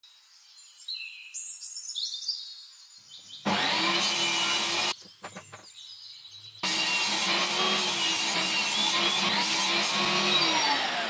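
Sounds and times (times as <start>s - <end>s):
birds chirping faintly: 0.0s - 6.7s
table saw cutting wood: 3.4s - 5.5s, 6.6s - 11.0s.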